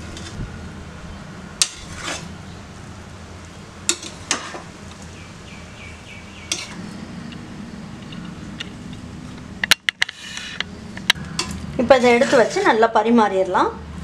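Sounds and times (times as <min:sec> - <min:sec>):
rice being stirred: 0:01.6 - 0:02.3, 0:06.5 - 0:06.8
metal spoon clinking on pot: 0:06.5 - 0:06.8.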